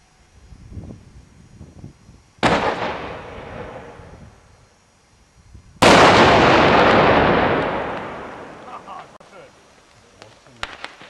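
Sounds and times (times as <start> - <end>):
firework mortar bang: 2.4 - 4.2, 5.8 - 9.2.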